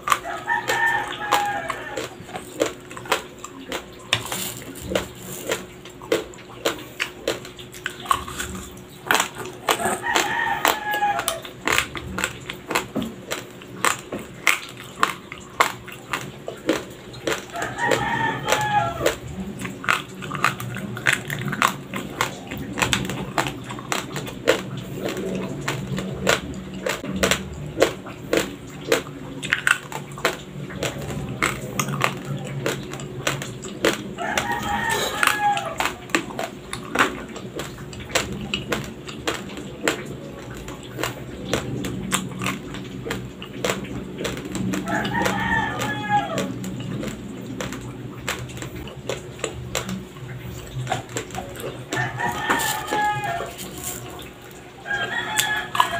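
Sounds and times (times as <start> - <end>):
rooster crowing: 0.0 - 2.7, 9.6 - 11.8, 17.3 - 22.5, 34.1 - 36.1, 44.8 - 46.9, 51.5 - 55.9
chewing dry crunchy rice: 0.0 - 55.9.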